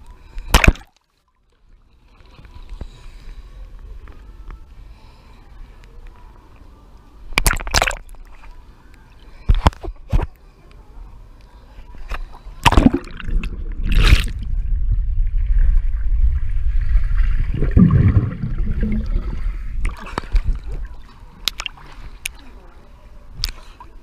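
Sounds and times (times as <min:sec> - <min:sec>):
water splashing: 0:00.4 - 0:01.1, 0:12.6 - 0:22.4
muffled underwater rumble: 0:11.0 - 0:24.0.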